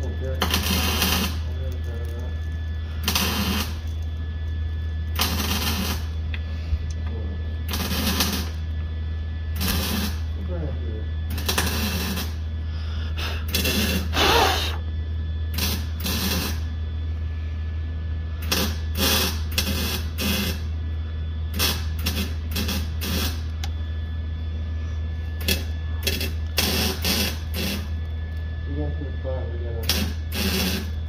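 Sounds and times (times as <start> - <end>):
welding hissing and crackling: 0.0 - 4.1, 5.0 - 6.3, 7.6 - 8.7, 9.5 - 10.4, 11.3 - 12.4, 13.2 - 14.8, 15.5 - 16.7, 18.4 - 20.7, 21.5 - 23.7, 25.4 - 27.9, 29.8 - 31.0
welding arc humming: 0.0 - 31.0.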